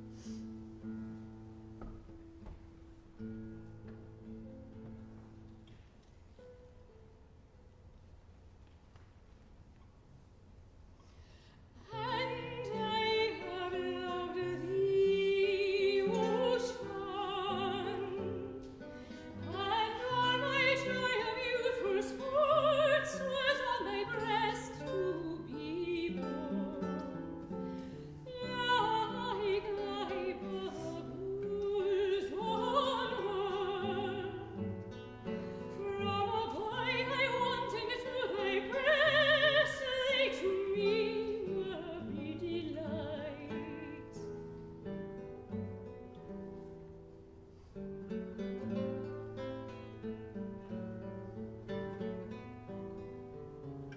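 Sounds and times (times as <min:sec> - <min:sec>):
guitar accompaniment: 0:00.0 - 0:07.8, 0:11.1 - 0:53.9
soprano singing with vibrato: 0:11.8 - 0:44.3.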